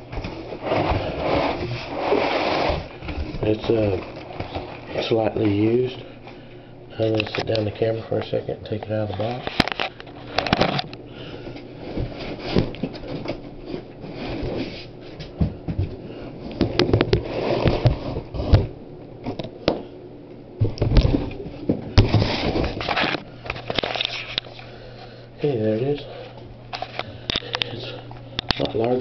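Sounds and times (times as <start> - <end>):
cardboard rustling and scraping: 0.0 - 5.4, 11.8 - 15.4, 16.4 - 18.8, 20.8 - 24.5.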